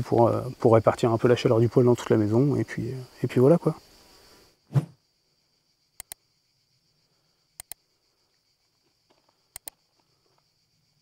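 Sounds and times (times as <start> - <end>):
faint high insect buzz: 0.0 - 11.0
sharp double clicks: 6.0 - 6.2, 7.6 - 7.8, 9.5 - 9.8.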